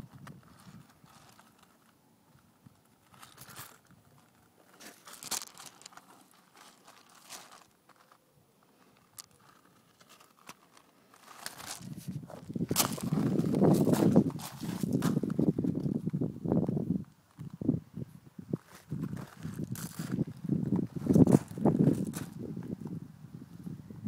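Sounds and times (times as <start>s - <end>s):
soft handling rustles and clicks: 0.1s - 16.2s.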